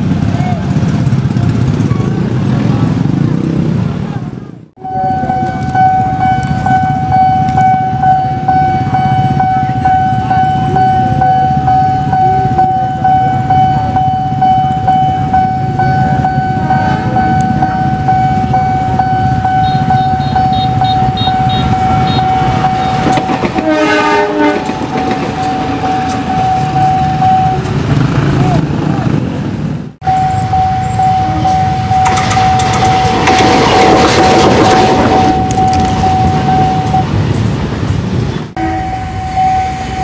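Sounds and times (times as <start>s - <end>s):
level crossing warning tone: 4.8s - 28.1s, 30.0s - 37.4s, 38.5s - 40.0s
train horn: 19.6s - 26.2s, 38.6s - 40.0s.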